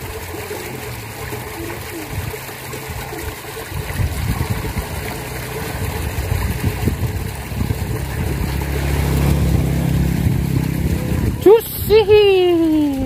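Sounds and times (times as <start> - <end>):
water rushing in ditch: 0.0 - 13.0
motorbike engine passing: 3.8 - 13.0.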